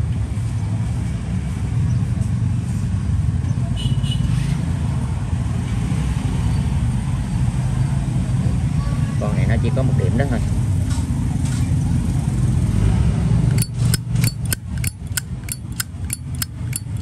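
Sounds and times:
low rumble of road traffic: 0.0 - 17.0.

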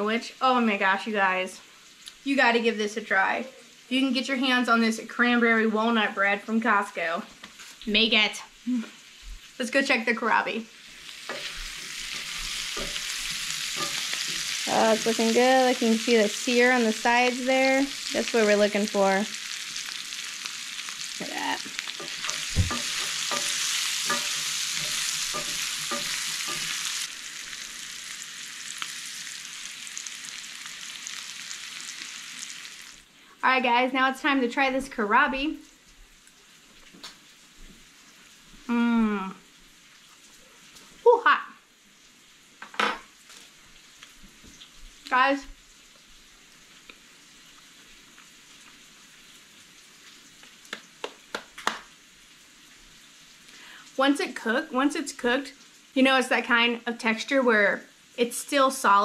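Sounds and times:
vegetables sizzling in a skillet: 0.0 - 59.0
utensils scraping a pan: 11.0 - 14.6, 21.6 - 27.1.

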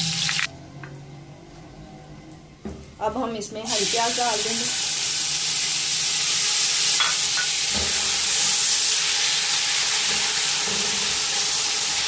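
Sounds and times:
onions sizzling in hot oil: 0.0 - 0.5, 3.7 - 12.0.

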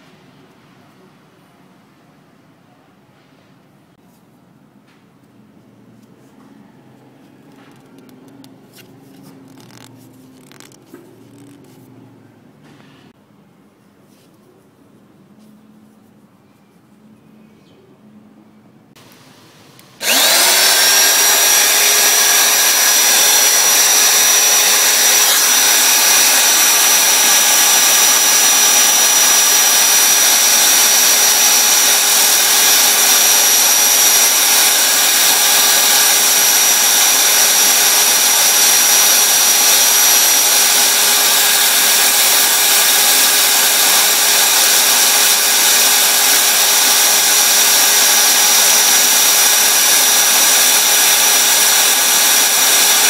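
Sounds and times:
electric drill running: 20.0 - 53.0.

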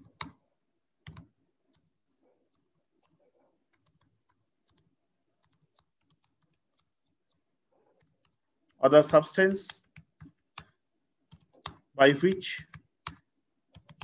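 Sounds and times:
computer keyboard keystrokes: 0.0 - 0.4, 1.0 - 1.8, 9.0 - 14.0.

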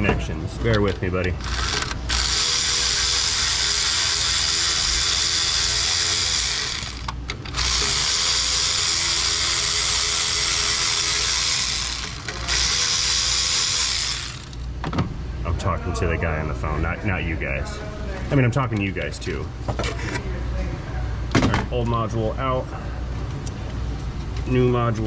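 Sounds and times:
power tool motor running: 1.4 - 14.8.

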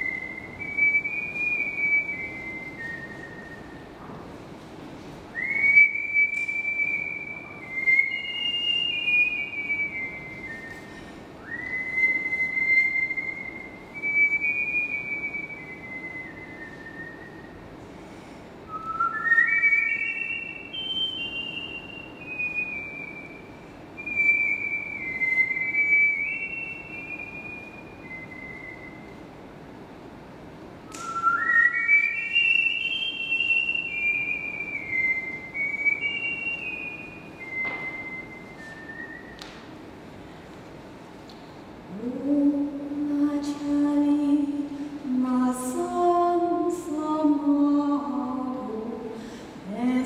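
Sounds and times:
person whistling a tune: 0.0 - 4.0, 5.4 - 17.6, 18.7 - 29.2, 30.9 - 39.7.

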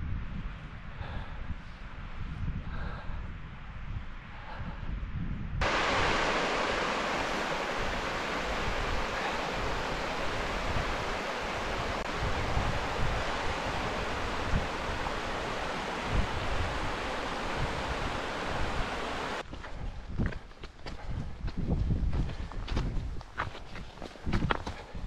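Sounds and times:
wind rumble on microphone: 0.0 - 25.0
stream rushing over stones: 5.6 - 19.4.

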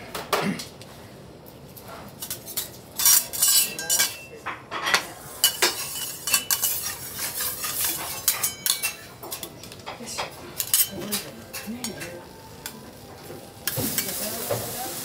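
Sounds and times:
metal spatula clinking on griddle: 2.2 - 12.3.

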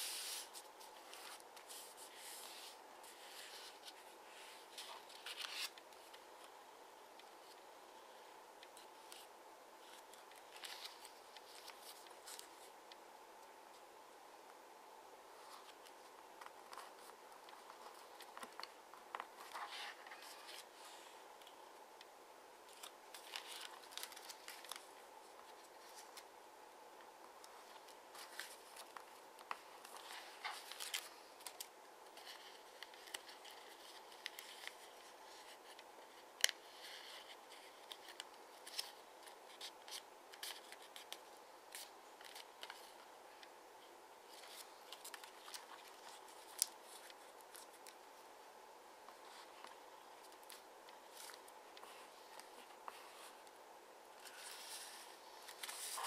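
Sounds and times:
paper rustling and crinkling: 0.0 - 6.5, 8.6 - 12.8, 15.4 - 21.6, 22.7 - 26.3, 27.4 - 43.5, 44.3 - 48.2, 49.1 - 53.5, 54.2 - 56.0
paper crackling as folds pressed: 22.7 - 26.3, 27.4 - 43.0, 54.2 - 56.0.

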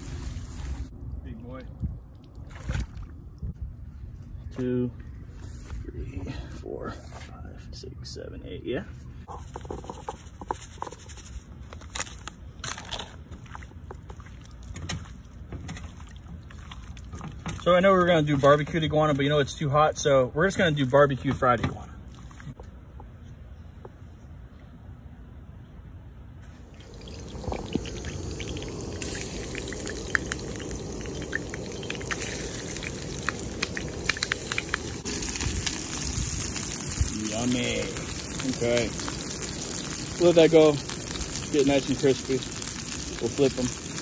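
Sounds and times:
meat sizzling in hot oil: 0.0 - 0.9, 26.8 - 44.0
hands squishing raw meat: 11.0 - 17.7
steady low rumble: 26.8 - 40.2
crackles and clicks: 26.8 - 44.0.

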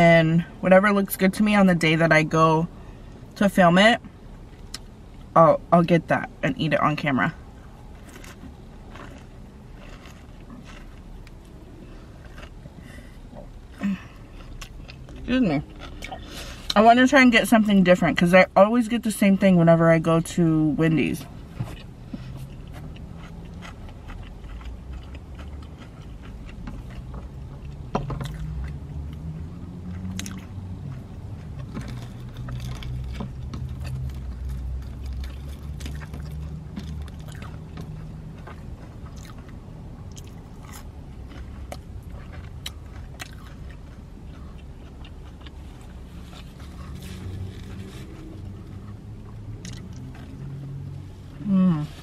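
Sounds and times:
low steady hum: 0.0 - 52.0
chewing crispy sandwich: 7.8 - 16.7, 21.6 - 50.8.

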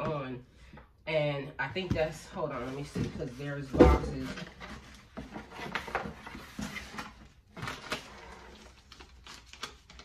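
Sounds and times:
paper rustling: 4.2 - 10.0.

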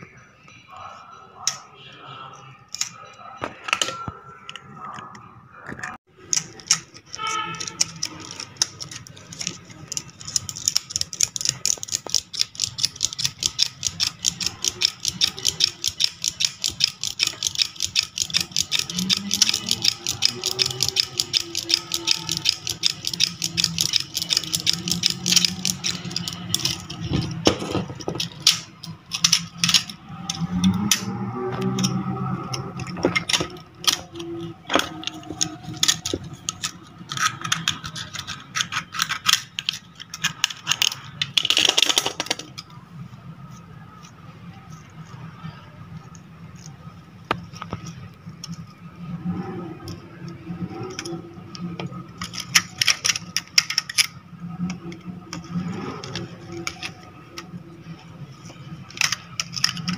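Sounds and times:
metal tool clicking on armature: 6.3 - 27.4, 28.0 - 42.6, 49.8 - 57.5.

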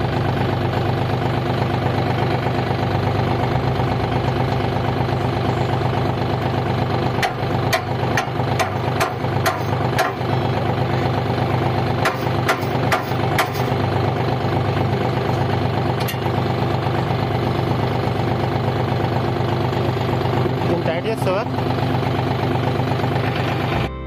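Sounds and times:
diesel tractor engine idling: 0.0 - 24.0
brick knocking on metal hitch: 7.2 - 10.3, 12.0 - 13.7.

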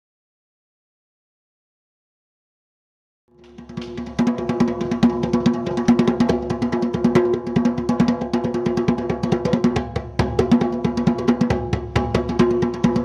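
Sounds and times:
rapid dense drumming: 3.4 - 13.0.

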